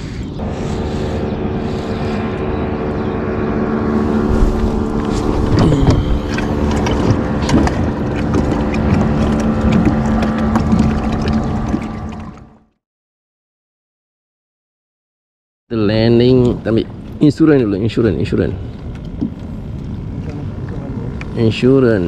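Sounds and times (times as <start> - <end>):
boat motor running: 0.0 - 12.8.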